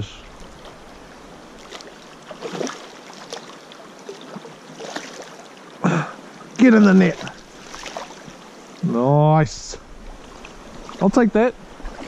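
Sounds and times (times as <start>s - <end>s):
river water rushing: 0.0s - 8.9s.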